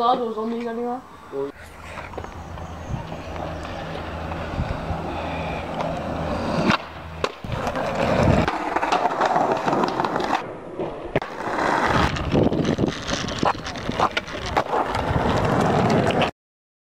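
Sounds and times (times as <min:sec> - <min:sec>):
skateboard wheels rolling on tarmac: 0:00.0 - 0:16.3
skateboard clacking on ground: 0:01.8 - 0:05.0, 0:05.6 - 0:16.3.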